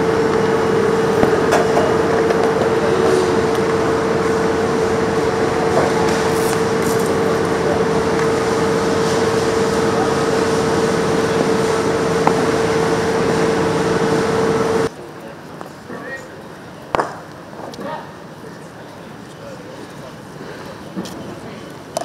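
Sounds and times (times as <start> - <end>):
mechanical drone: 0.0 - 14.9
constant hum: 0.0 - 22.0.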